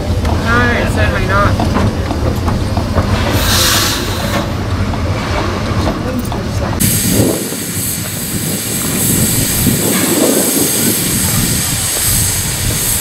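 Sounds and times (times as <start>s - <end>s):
steam railcar rumbling: 0.0s - 13.0s
steam hiss: 3.0s - 4.8s, 6.8s - 13.0s
harsh steam hiss: 3.1s - 4.7s, 6.8s - 13.0s.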